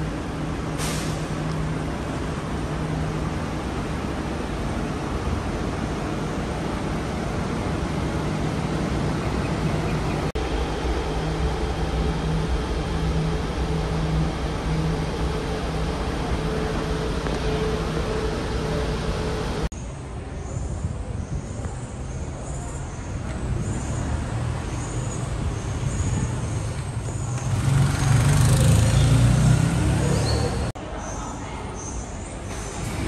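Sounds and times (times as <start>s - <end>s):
train air conditioning rushing: 0.0s - 21.7s, 31.2s - 33.0s.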